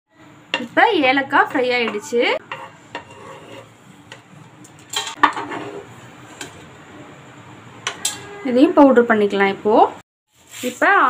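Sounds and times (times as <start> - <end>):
wooden spatula scraping a pan: 2.4 - 4.3, 5.1 - 6.6.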